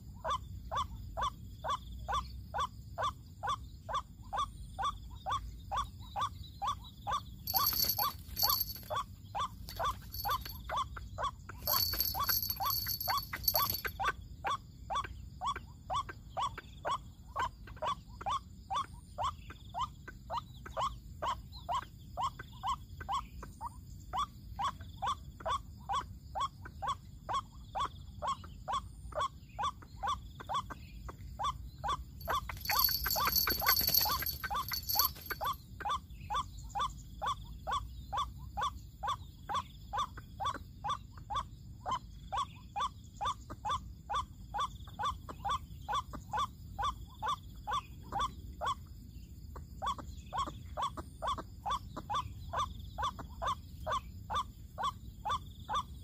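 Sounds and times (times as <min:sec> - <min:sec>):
waterhen calling: 0:07.5 - 0:09.0, 0:09.6 - 0:10.6, 0:11.6 - 0:13.9, 0:32.2 - 0:35.5.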